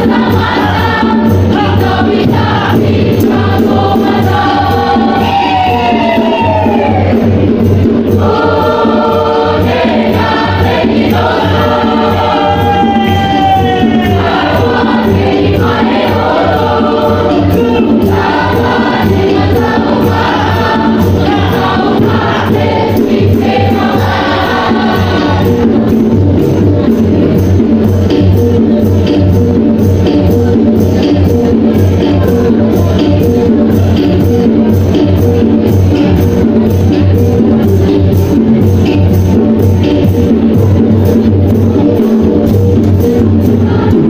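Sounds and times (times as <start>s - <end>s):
mixed choir singing: 0.0s - 27.5s, 43.0s - 44.0s
steady low beat: 0.0s - 44.0s.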